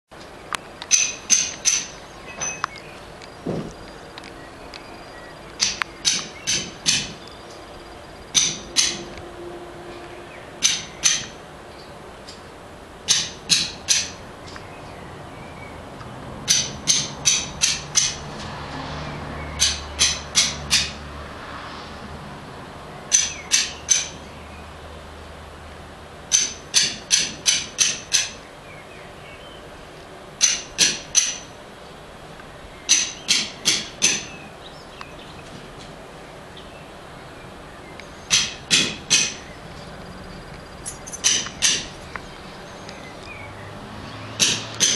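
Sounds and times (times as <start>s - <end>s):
sharp knocks: 3.4s - 3.8s, 5.6s - 7.3s, 8.3s - 9.2s, 10.6s - 11.4s, 13.1s - 14.2s, 16.4s - 18.6s, 19.5s - 21.0s, 23.1s - 24.2s, 26.3s - 28.4s, 30.4s - 31.6s, 32.9s - 34.4s, 38.3s - 39.5s, 41.0s - 42.0s, 44.3s - 44.9s.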